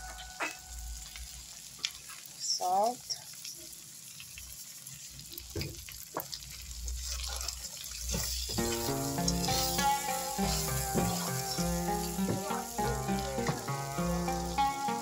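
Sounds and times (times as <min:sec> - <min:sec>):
shrimp sizzling in a pan: 0:00.0 - 0:15.0
background music: 0:08.6 - 0:15.0
spatula knocking against pan: 0:09.5 - 0:12.6.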